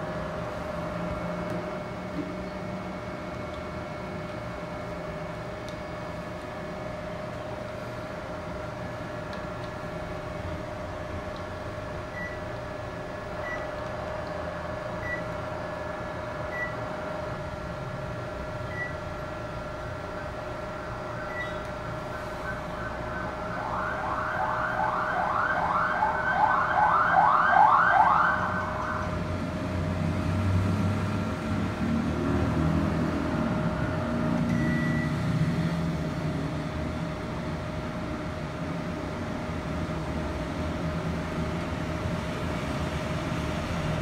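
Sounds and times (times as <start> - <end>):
steady hum: 0.0 - 44.0
air conditioner beeps: 12.0 - 12.6, 13.4 - 13.9, 15.0 - 15.4, 16.4 - 16.9, 18.6 - 19.2, 20.9 - 29.2, 33.7 - 35.7
rising siren-like chirps: 21.2 - 29.2.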